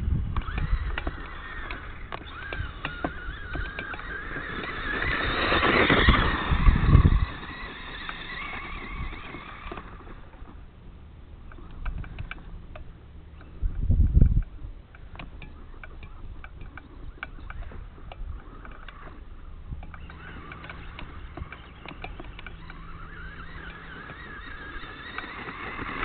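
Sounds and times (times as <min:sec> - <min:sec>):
wind buffeting microphone: 0:00.0 - 0:10.7, 0:11.4 - 0:26.0
dirt bike engine revving: 0:00.4 - 0:10.5, 0:19.9 - 0:26.0.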